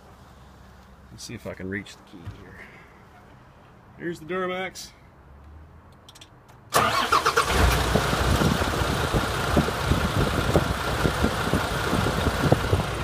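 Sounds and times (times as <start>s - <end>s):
diesel engine starting and idling: 6.7s - 13.0s.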